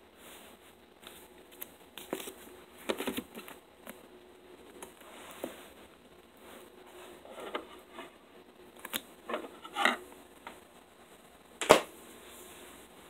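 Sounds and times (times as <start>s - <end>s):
books rustling and tapping: 1.0s - 4.0s.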